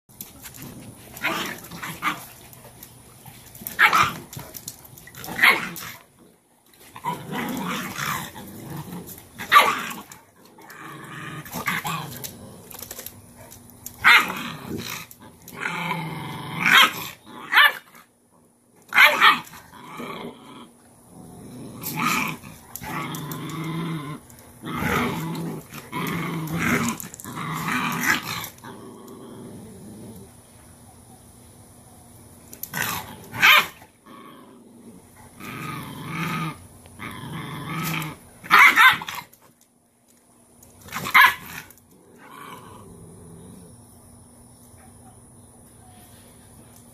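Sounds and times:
dogs growling: 0:03.2 - 0:17.6, 0:19.5 - 0:30.4, 0:32.7 - 0:38.3, 0:41.0 - 0:43.8
dog barking: 0:38.5 - 0:39.1.

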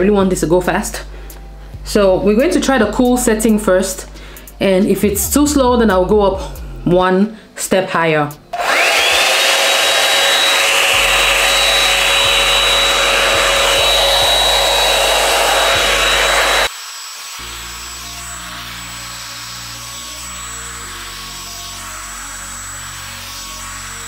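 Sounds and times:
background music: 0:00.0 - 0:08.6
hair dryer whining and blowing: 0:08.5 - 0:24.0.

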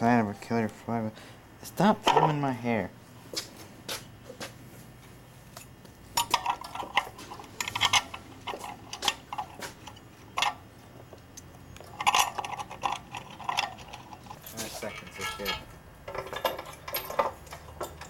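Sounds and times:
metallic clinks of engine parts: 0:01.9 - 0:02.6, 0:05.5 - 0:18.0.

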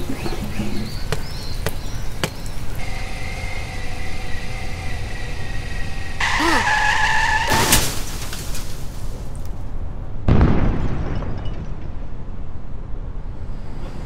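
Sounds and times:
vehicle engine humming: 0:00.0 - 0:07.6
tyres squealing in a skid: 0:00.0 - 0:09.0
loud crash impact: 0:07.5 - 0:09.1.

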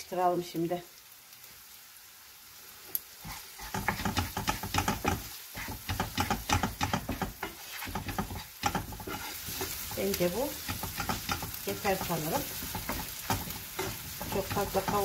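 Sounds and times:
onions sizzling: 0:00.0 - 0:15.0
spatula scraping frying pan: 0:03.2 - 0:15.0.

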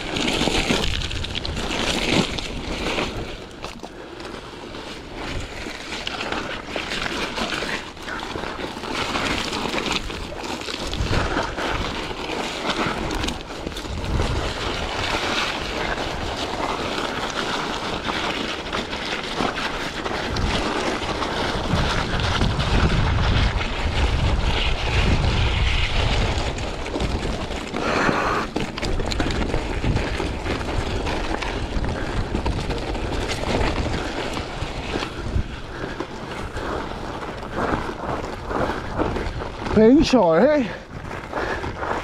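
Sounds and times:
bike tyres crunching on gravel: 0:00.0 - 0:42.0
wind buffeting microphone: 0:10.1 - 0:17.5, 0:20.0 - 0:42.0.

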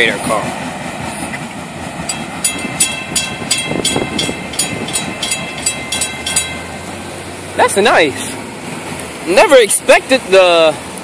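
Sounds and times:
freight train rumbling: 0:00.0 - 0:11.0
crossing warning bell ringing: 0:01.9 - 0:08.0.

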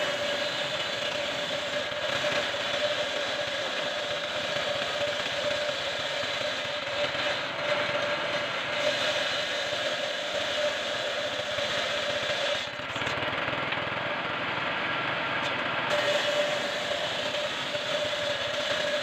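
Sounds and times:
steady saw whine: 0:00.0 - 0:19.0
table saw ripping wood: 0:15.9 - 0:19.0.

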